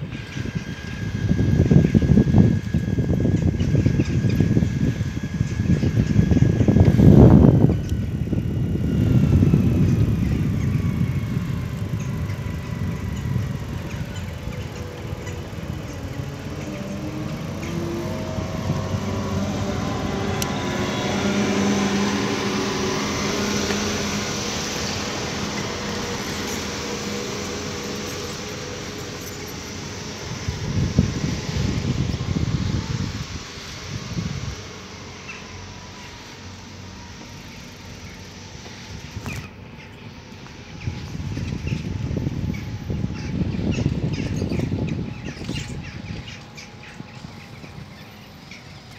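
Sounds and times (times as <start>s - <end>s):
low rumble on microphone: 0.0s - 36.4s
birds chirping and squawking: 0.0s - 36.8s, 37.4s - 48.9s
vehicle engines humming: 0.0s - 48.9s.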